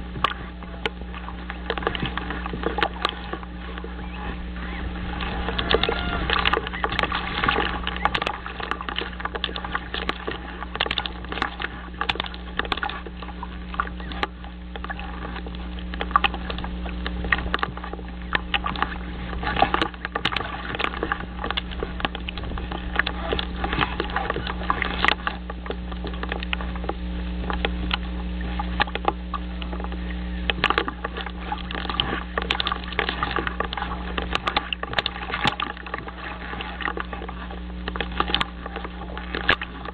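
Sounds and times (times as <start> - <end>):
crackling and clicking: 0.0 - 39.9
steady low hum: 0.0 - 39.9.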